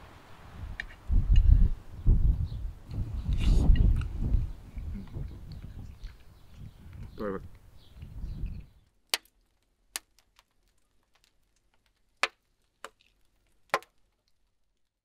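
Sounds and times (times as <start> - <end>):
wood logs crackling and popping: 5.0 - 15.0.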